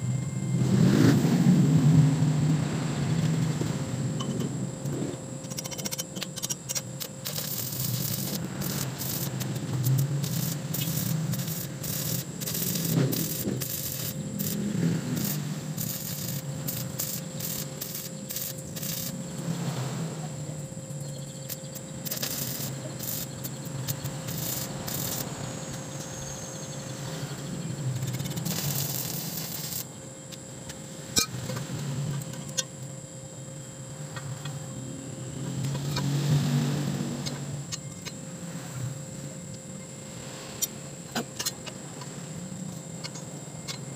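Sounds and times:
welding arc crackling: 0.8 - 19.8, 20.9 - 30.5.

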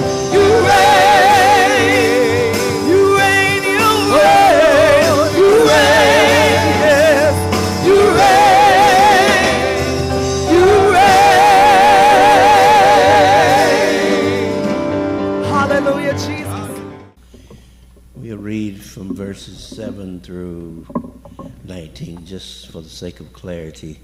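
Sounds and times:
electronic keyboard accompaniment: 0.0 - 17.2
woman singing gospel: 0.2 - 9.9.

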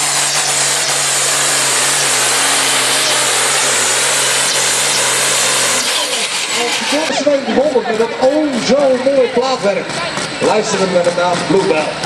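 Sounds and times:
loud hiss: 0.0 - 7.1
diesel engine at full load: 0.0 - 12.0.

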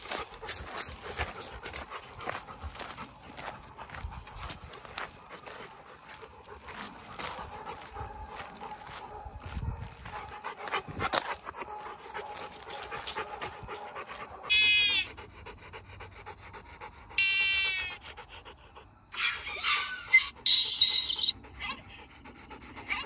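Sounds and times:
dog whining: 17.2 - 18.0, 19.1 - 22.1.

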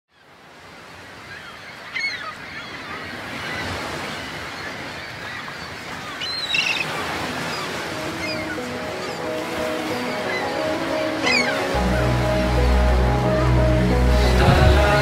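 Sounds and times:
birds calling: 1.2 - 15.0
surf breaking on rocky shore: 6.8 - 15.0.

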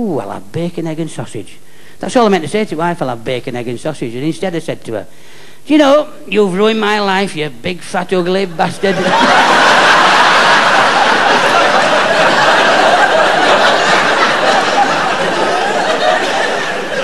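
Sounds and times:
large audience laughing: 8.8 - 17.0.

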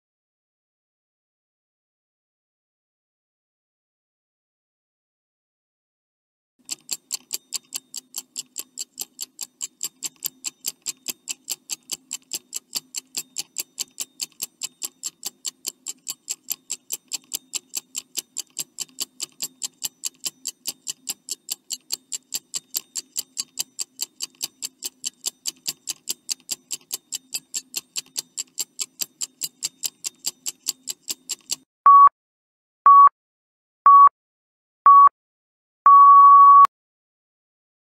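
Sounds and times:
clock ticking: 6.6 - 31.7.

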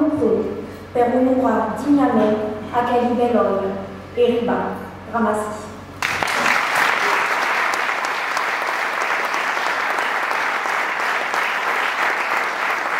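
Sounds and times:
audience applauding: 6.0 - 12.9.

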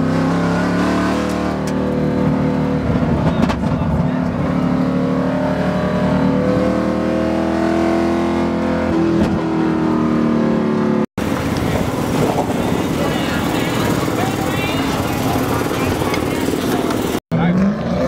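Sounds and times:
car engine revving: 0.0 - 18.0
rough noisy background: 11.2 - 17.2.

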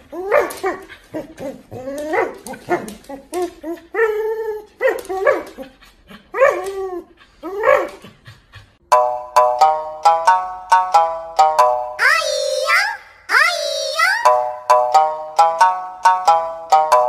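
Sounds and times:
plucked music: 8.9 - 12.7, 13.7 - 17.0.

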